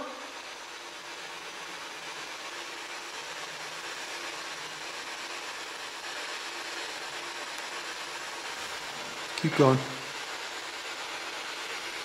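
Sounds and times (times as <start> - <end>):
hissing radio static: 0.0 - 0.4, 9.3 - 10.1.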